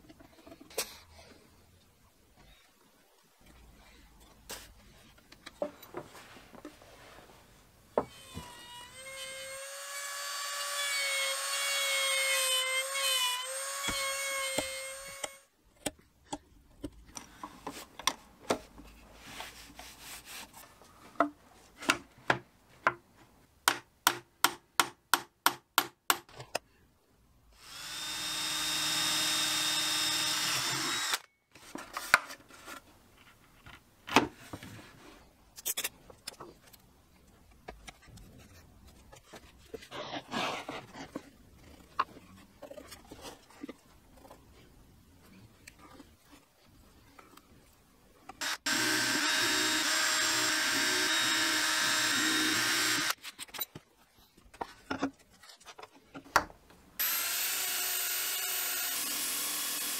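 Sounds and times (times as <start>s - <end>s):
power tool whining on wood: 27.6s - 31.2s, 48.4s - 53.2s, 57.0s - 59.9s.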